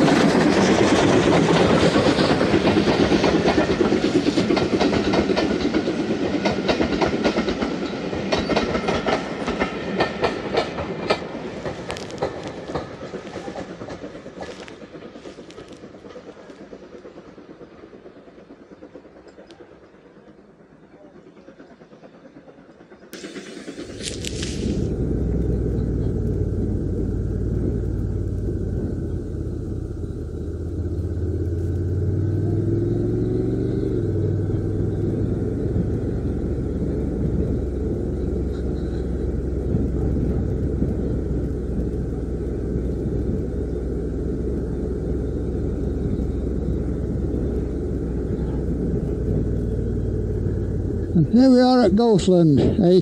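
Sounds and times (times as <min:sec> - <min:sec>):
wind rumble: 0:00.0 - 0:17.6, 0:23.2 - 0:53.0
motorcycle engine running: 0:23.2 - 0:51.9.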